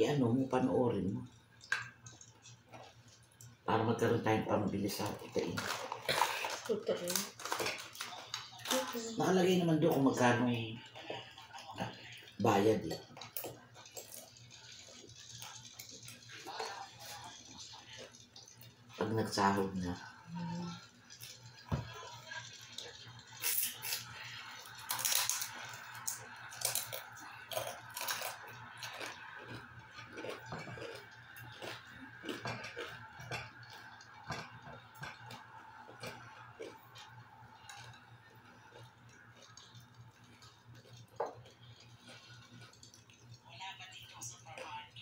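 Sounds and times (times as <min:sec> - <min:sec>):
chewing crunches: 0:04.9 - 0:08.9, 0:10.8 - 0:19.0, 0:22.5 - 0:43.4.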